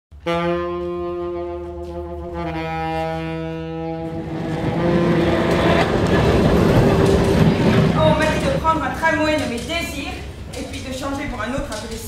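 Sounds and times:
horn-like held notes: 0:00.2 - 0:07.7
low drone: 0:02.9 - 0:09.0
swelling noise: 0:03.8 - 0:10.5.

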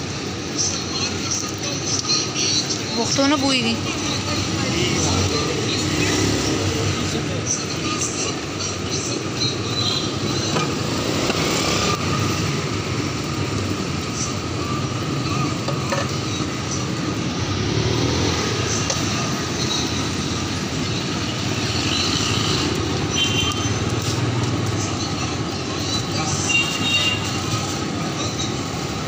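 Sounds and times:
street traffic: 0:00.0 - 0:29.0.

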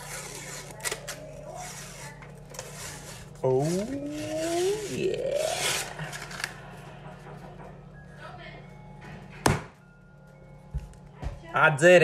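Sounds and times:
paper wrapper tearing: 0:00.0 - 0:06.6.

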